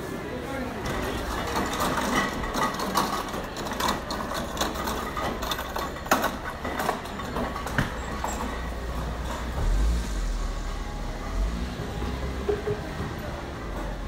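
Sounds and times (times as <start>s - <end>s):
noisy din: 8.5s - 14.0s.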